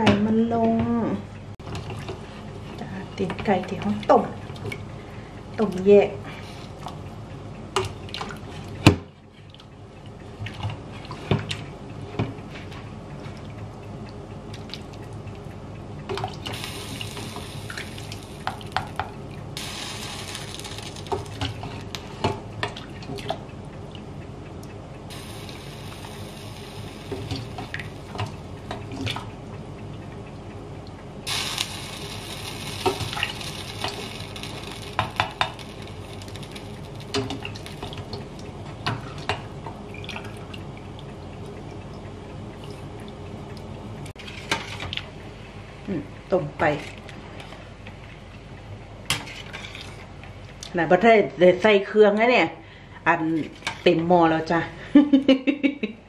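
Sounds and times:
water dripping and splashing: 7.8 - 45.2.

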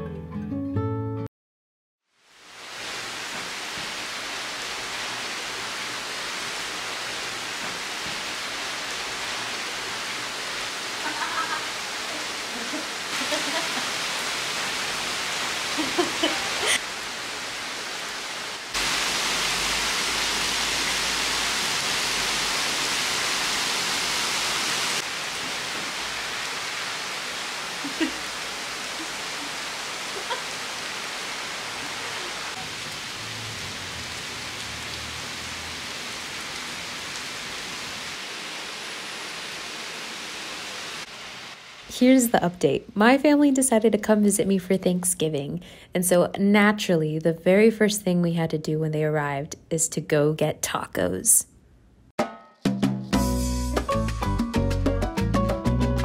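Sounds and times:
heavy rain hissing: 2.1 - 42.8.

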